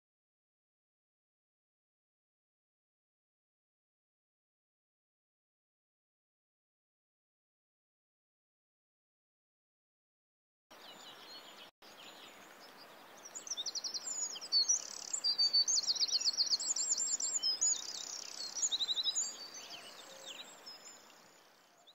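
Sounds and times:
faint steady hiss: 0:10.7 - 0:21.9
songbirds trilling and chirping: 0:10.7 - 0:21.9.

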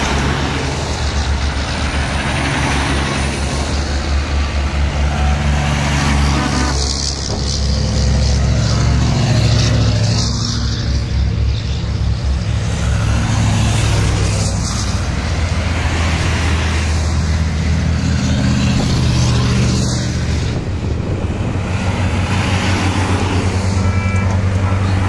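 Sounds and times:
diesel trucks driving past: 0:00.0 - 0:25.0.

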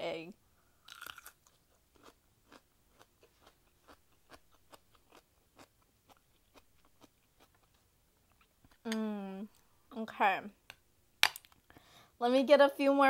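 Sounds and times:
crunchy chewing of cucumber: 0:00.8 - 0:07.8.

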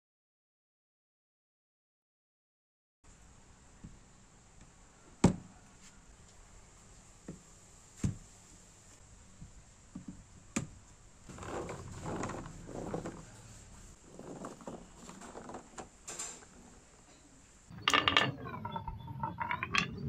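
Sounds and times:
rattling: 0:17.7 - 0:20.0.

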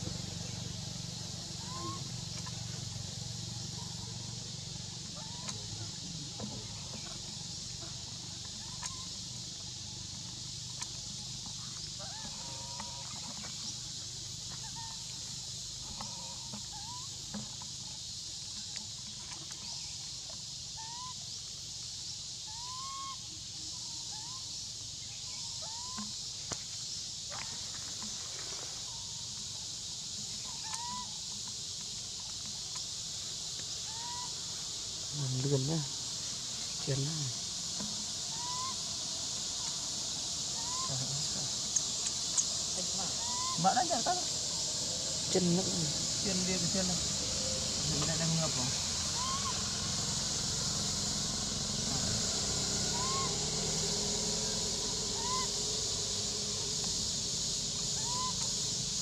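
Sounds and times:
high-pitched insect drone: 0:00.0 - 0:59.0
short upturned chirping calls: 0:30.1 - 0:31.4, 0:33.0 - 0:52.2, 0:52.8 - 0:59.0.

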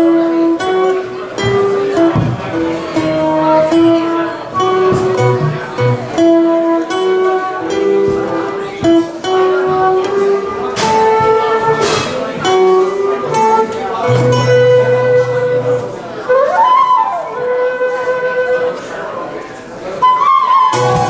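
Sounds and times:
strummed acoustic guitar: 0:00.0 - 0:16.1
saxophone: 0:00.0 - 0:18.8, 0:20.0 - 0:21.0
flute: 0:12.7 - 0:19.1, 0:19.9 - 0:21.0
drum kit: 0:20.7 - 0:21.0.

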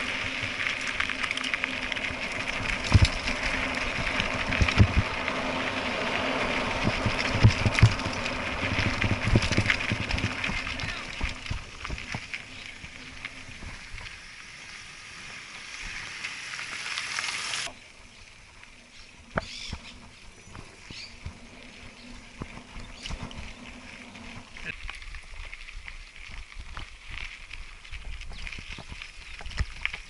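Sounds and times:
bike rattling over ruts: 0:00.0 - 0:30.0
wind and tyres rushing on dirt: 0:00.0 - 0:30.0.

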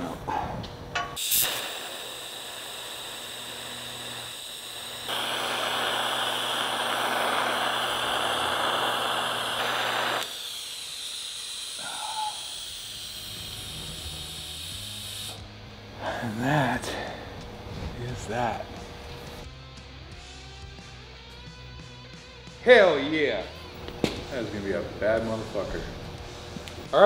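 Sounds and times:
low electrical hum: 0:00.0 - 0:19.4, 0:22.6 - 0:27.0
welding arc striking click: 0:00.9 - 0:11.8
welding arc hissing: 0:01.2 - 0:15.5.

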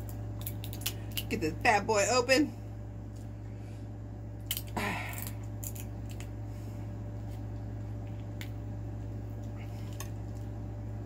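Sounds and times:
shell cracking crunch: 0:00.0 - 0:01.3, 0:04.4 - 0:06.4.

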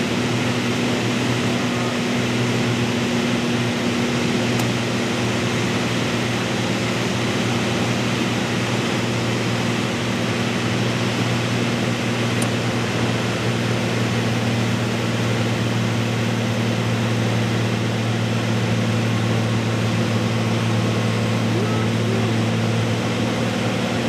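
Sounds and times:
plane engine drone: 0:00.0 - 0:24.0.

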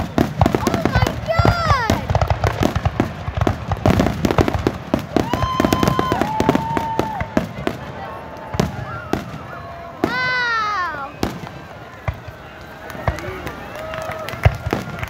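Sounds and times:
fireworks crackling and banging: 0:00.0 - 0:15.0.

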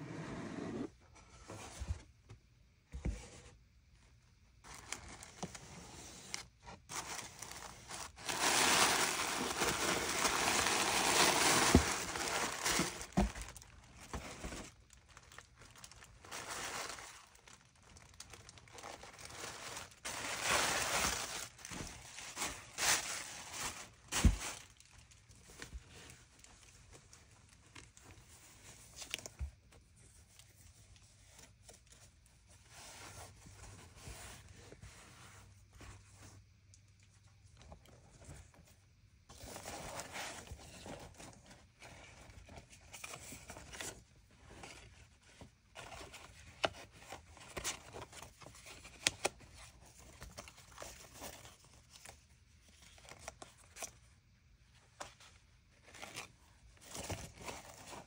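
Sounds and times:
tissue paper crinkling: 0:06.3 - 0:29.2.

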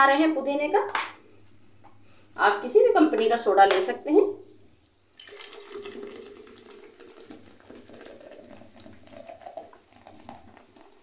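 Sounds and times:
carbonation fizzing: 0:04.7 - 0:11.0
soda water pouring and splashing: 0:04.8 - 0:11.0.

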